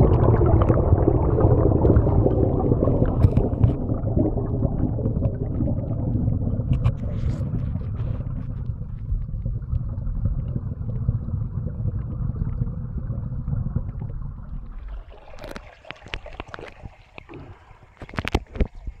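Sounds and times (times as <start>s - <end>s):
water splashes: 0.0s - 9.9s, 13.8s - 19.0s
muffled underwater stream rumble: 0.0s - 19.0s.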